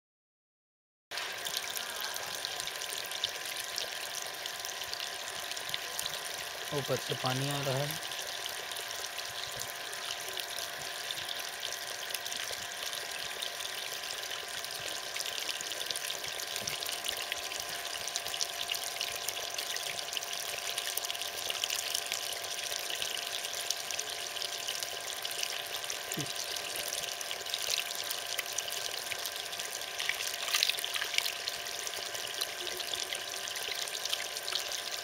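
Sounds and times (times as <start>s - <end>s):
water splashing over rocks: 29.8s - 31.5s.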